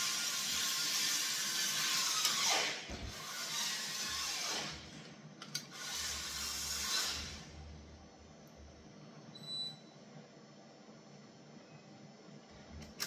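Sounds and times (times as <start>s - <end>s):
cordless drill motor whirring: 0.0s - 4.8s, 5.7s - 7.4s.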